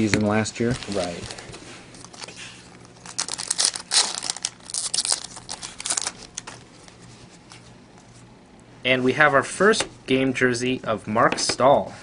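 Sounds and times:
foil wrapper crinkling and tearing: 0.2s - 6.6s.

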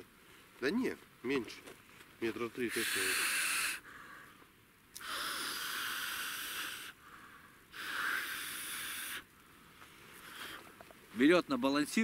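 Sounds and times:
person breathing: 2.8s - 4.4s, 5.0s - 10.8s.

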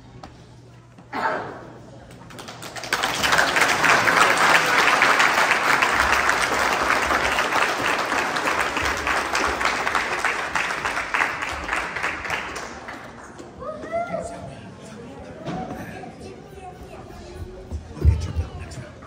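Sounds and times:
audience applauding: 2.3s - 13.6s.

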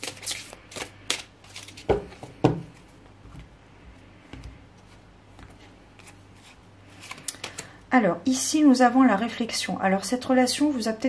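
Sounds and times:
faint card handling noises: 0.0s - 7.8s.

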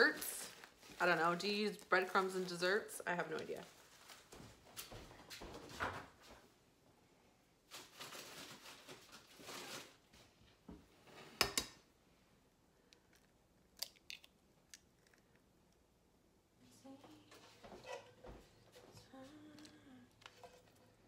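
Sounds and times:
kitchen rustling: 0.0s - 6.6s, 7.6s - 11.9s, 17.0s - 21.0s.

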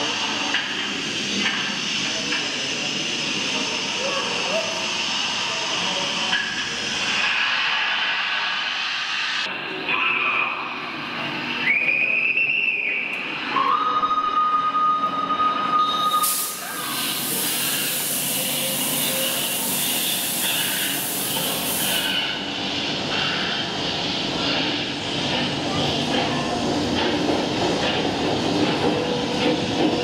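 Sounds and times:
steam hissing: 0.0s - 9.5s, 16.1s - 25.5s.

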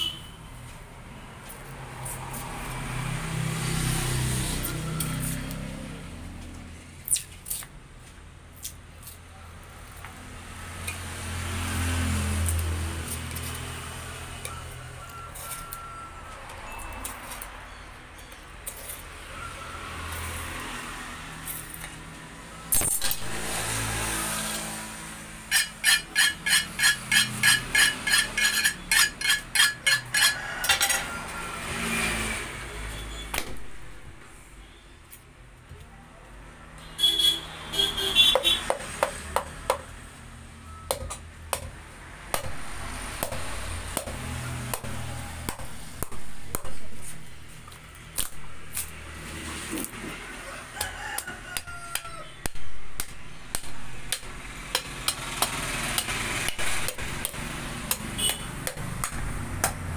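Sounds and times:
road traffic passing: 0.0s - 59.9s
metal tools clattering on table: 27.3s - 31.1s
knife striking bone and block: 40.9s - 47.3s, 48.1s - 49.0s, 50.8s - 59.9s.

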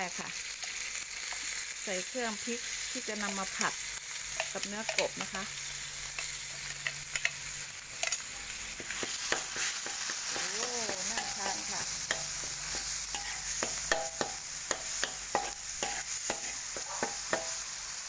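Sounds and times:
paste sizzling in oil: 0.0s - 18.0s
metal ladle scraping wok: 4.3s - 17.8s.

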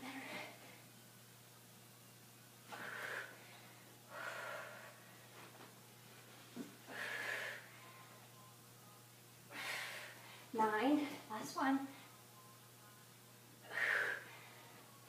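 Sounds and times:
woman breathing hard: 2.7s - 5.5s, 6.8s - 8.0s, 9.5s - 11.2s, 13.6s - 14.8s.

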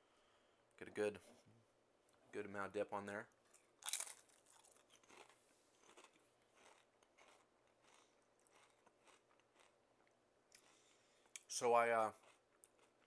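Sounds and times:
chewing crunchy potato chip: 3.8s - 11.0s, 12.1s - 13.0s.

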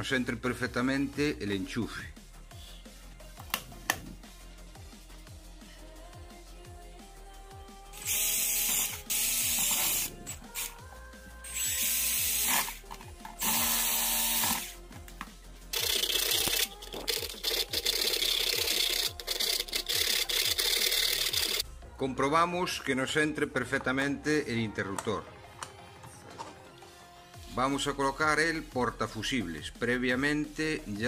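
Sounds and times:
background music: 0.0s - 31.0s
cordless drill boring plastic: 8.0s - 10.8s, 11.5s - 14.8s, 15.8s - 21.6s
hand file rasping plastic: 15.8s - 21.6s.

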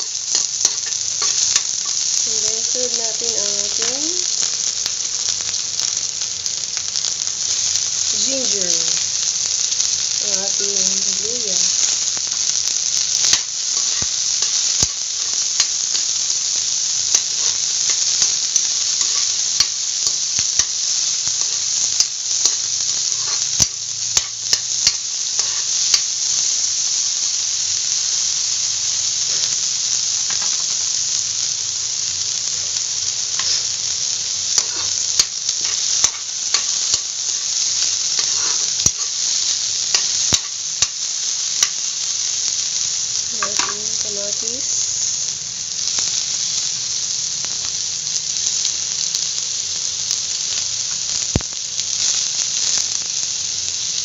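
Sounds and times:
garlic and onion sizzling in oil: 0.0s - 54.0s
metal spatula scraping a pan: 25.4s - 25.7s, 33.4s - 33.8s, 34.6s - 35.0s, 38.2s - 39.1s.

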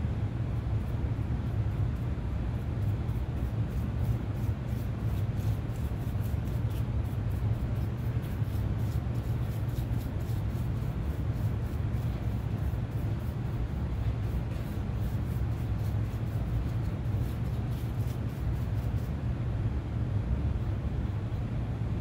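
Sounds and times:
steady low hum: 0.0s - 22.0s
paintbrush scratching on wood: 0.8s - 19.2s.

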